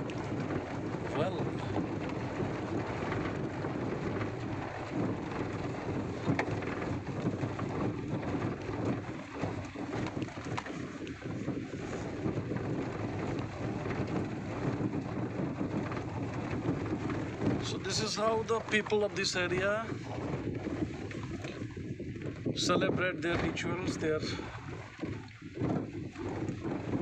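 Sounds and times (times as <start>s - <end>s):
vehicle rumbling on dirt road: 0.0s - 27.0s
wind buffeting microphone: 0.0s - 27.0s.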